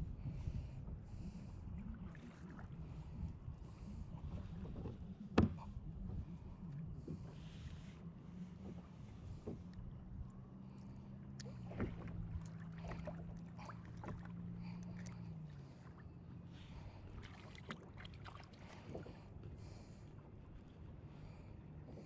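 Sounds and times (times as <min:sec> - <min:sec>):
low steady hum: 0:00.0 - 0:22.0
water lapping: 0:00.0 - 0:22.0
kayak clicks and knocks: 0:04.8 - 0:05.8.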